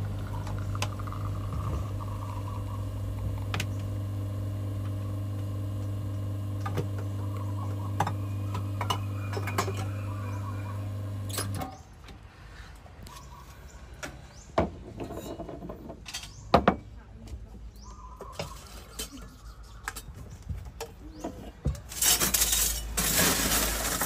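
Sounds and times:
espresso machine pump humming: 0.0 - 11.6.

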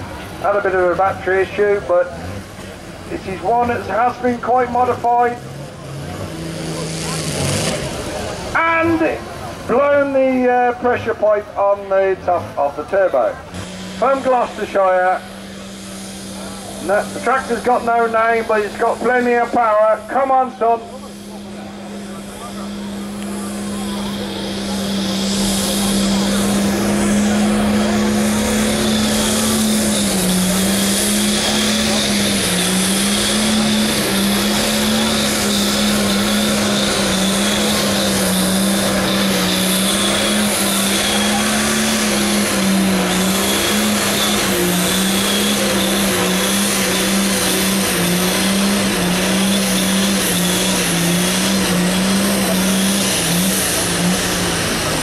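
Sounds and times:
high-revving diesel engine drone: 0.0 - 55.0.

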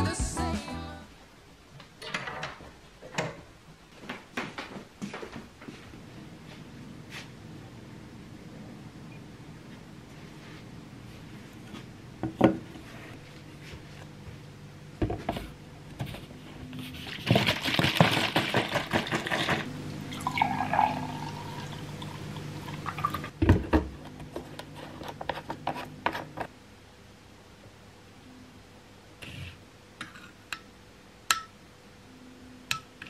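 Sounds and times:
glass filling gurgle: 20.1 - 23.3
juice pouring into a glass: 20.1 - 23.3.

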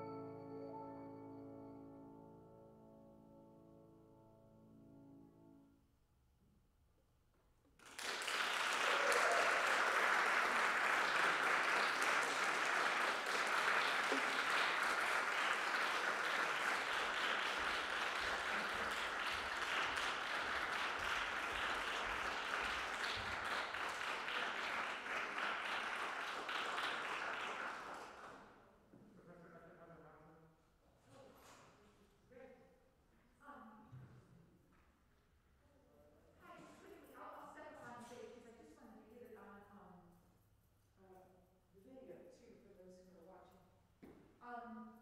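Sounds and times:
audience applauding: 7.8 - 28.5.

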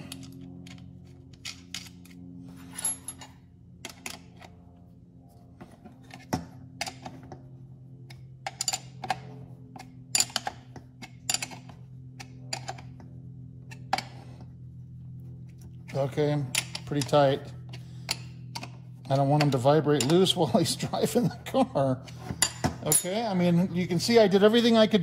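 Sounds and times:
steady low hum: 0.0 - 25.0
wrench clinking on metal: 8.4 - 9.2.

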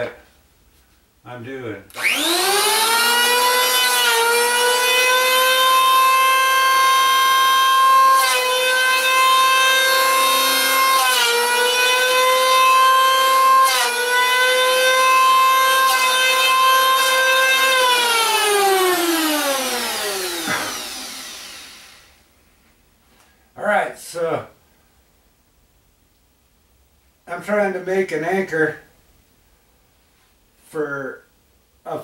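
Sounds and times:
electric planer whining: 1.9 - 22.2.

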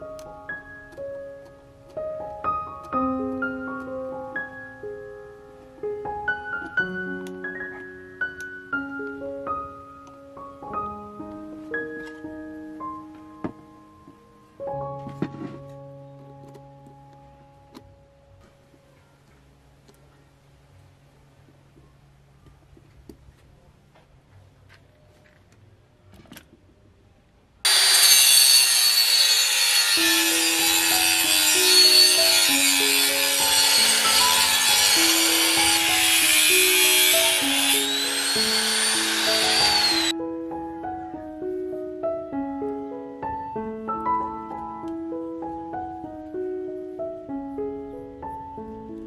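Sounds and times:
gentle piano melody: 0.0 - 22.8, 30.0 - 49.0
angle grinder cutting stone tile: 27.7 - 40.1.

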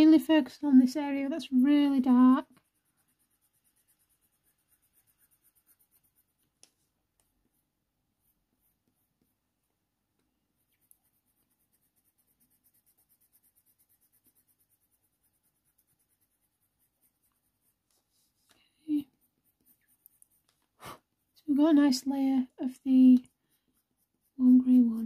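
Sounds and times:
pencil scratching on paper: 0.0 - 9.7, 10.5 - 25.0
small ticks: 19.8 - 20.7.

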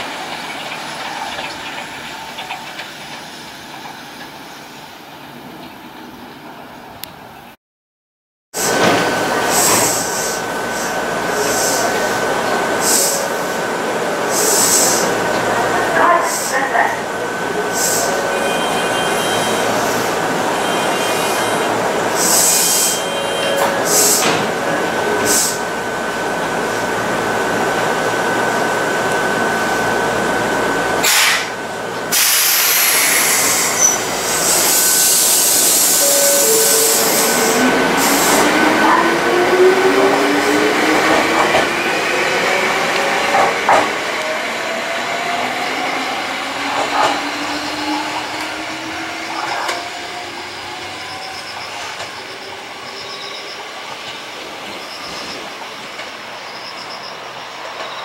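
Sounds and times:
train running noise: 0.0 - 7.5, 8.6 - 58.0
steady high tone: 33.4 - 41.2.

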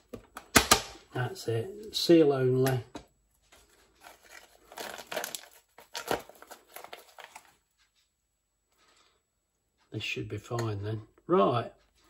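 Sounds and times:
plastic bag crinkling: 3.6 - 7.6.

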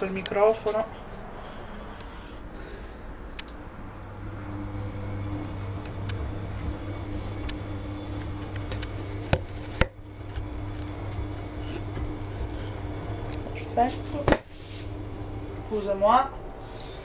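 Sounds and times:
motor hum: 0.9 - 17.0
sharp clicks: 3.4 - 3.6
washing machine drum turning: 4.8 - 13.0.

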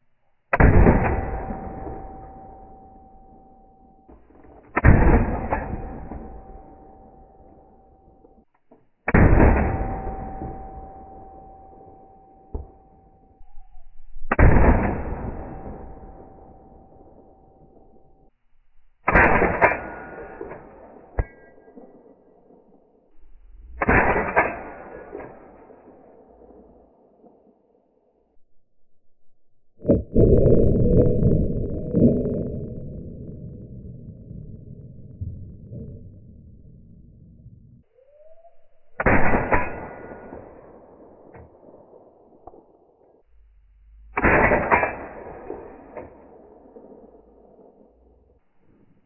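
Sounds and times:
suppressed gunshots: 4.6 - 6.8, 19.0 - 22.6, 23.8 - 27.5, 39.0 - 42.8, 44.2 - 47.8.

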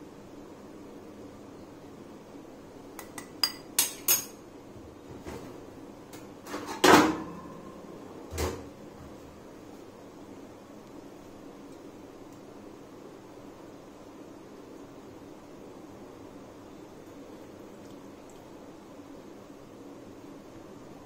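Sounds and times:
spoon clinking on metal and glass: 3.0 - 4.4.

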